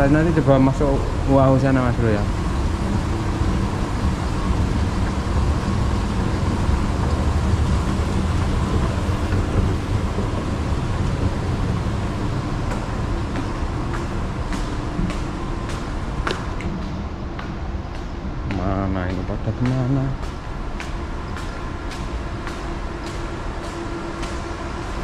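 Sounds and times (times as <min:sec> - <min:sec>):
escalator rumble and hum: 0:00.0 - 0:25.0
footsteps on tiled floor: 0:08.3 - 0:25.0.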